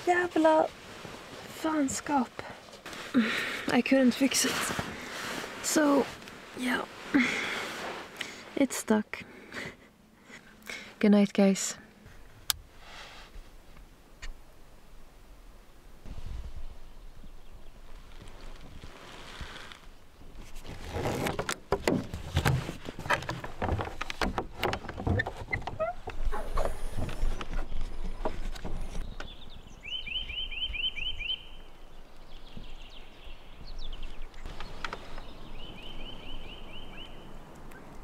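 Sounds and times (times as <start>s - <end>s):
bird rising chirps: 29.0s - 37.9s.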